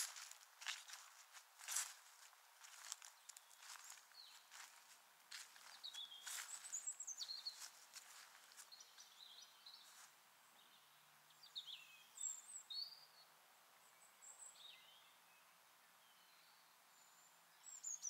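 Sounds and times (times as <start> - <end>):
footsteps on a path: 0.0 - 9.1
faint outdoor background: 0.0 - 18.0.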